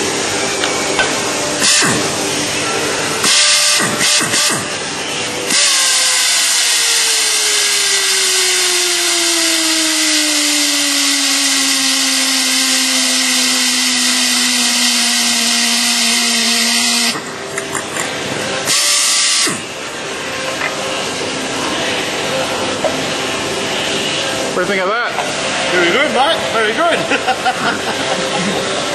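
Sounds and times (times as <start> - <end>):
air torque wrench whining: 0.0 - 2.3, 3.2 - 19.8.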